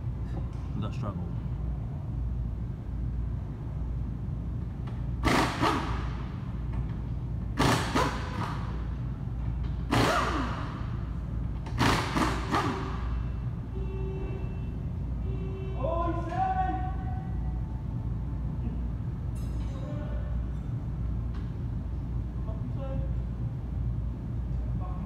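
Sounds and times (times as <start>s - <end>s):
steady low hum: 0.0s - 25.0s
impact wrench bursts: 4.9s - 9.0s, 9.6s - 13.4s.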